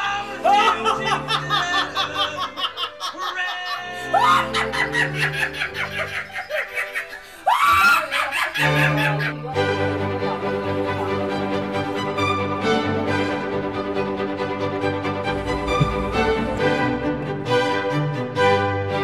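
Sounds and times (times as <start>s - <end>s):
people screaming: 0.0s - 9.5s
people laughing: 0.0s - 12.2s
background music: 0.0s - 19.0s
rising and falling wails: 15.0s - 18.2s.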